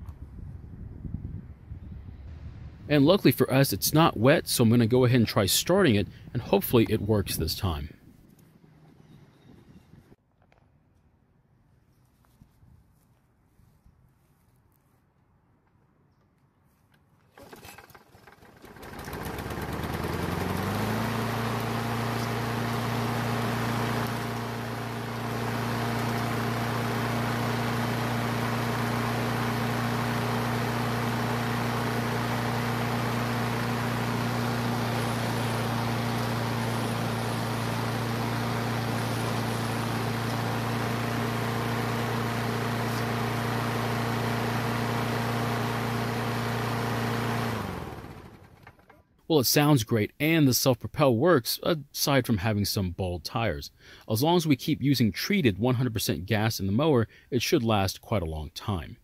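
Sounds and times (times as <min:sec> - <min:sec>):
lawn mower engine running: 0:17.3 - 0:49.0.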